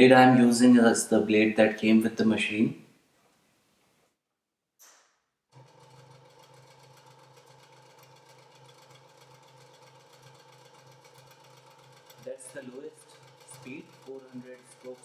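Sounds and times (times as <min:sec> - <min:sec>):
scroll saw humming: 0:05.5 - 0:15.0.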